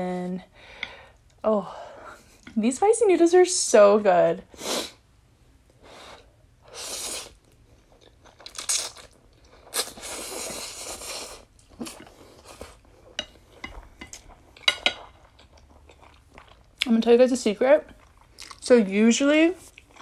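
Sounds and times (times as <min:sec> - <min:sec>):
wet chewing and mouth smacks: 0:07.4 - 0:10.6, 0:13.8 - 0:16.9, 0:17.9 - 0:18.6, 0:19.6 - 0:20.0
slurping noodles: 0:08.7 - 0:12.6.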